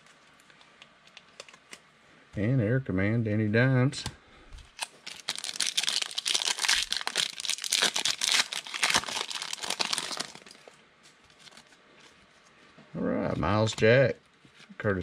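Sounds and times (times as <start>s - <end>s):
foil pack crinkling: 4.7s - 10.7s.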